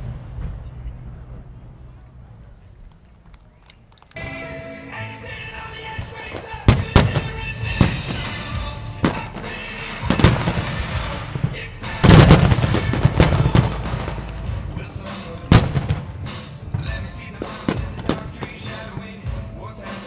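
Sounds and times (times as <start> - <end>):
music: 4.1 - 20.0
fireworks bursting: 4.2 - 20.0.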